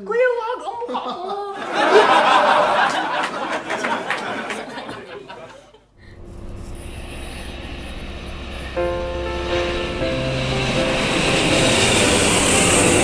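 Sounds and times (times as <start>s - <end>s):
people laughing: 0.8s - 5.8s
low steady rumble: 6.0s - 13.0s.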